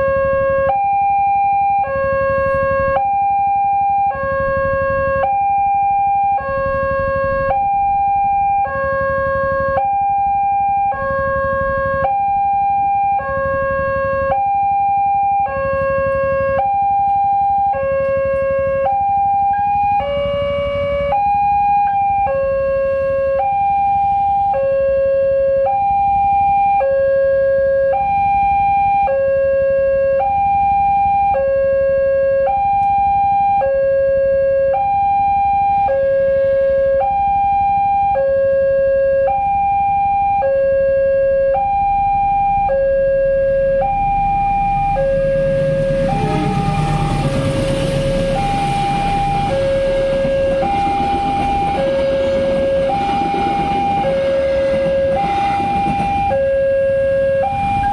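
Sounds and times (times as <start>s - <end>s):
level-crossing two-tone alarm: 0.0s - 57.9s
diesel locomotive rumble: 17.3s - 23.4s, 42.1s - 57.9s.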